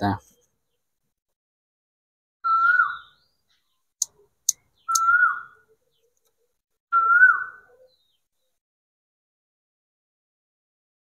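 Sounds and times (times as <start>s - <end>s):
bird whistling call: 2.5s - 3.3s, 4.5s - 5.7s, 6.9s - 8.0s
sharp clicks: 4.0s - 5.1s.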